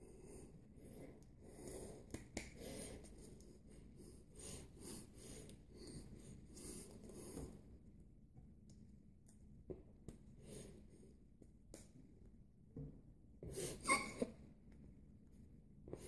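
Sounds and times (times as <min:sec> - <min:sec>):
soft breathing: 0:00.0 - 0:07.8.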